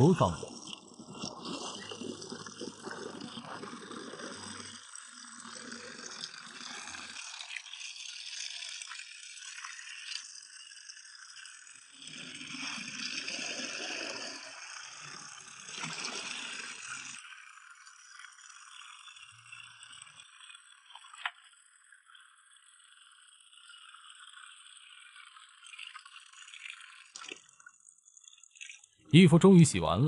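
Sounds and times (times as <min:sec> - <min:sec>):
water splashing into a bucket: 0:26.3 - 0:27.5.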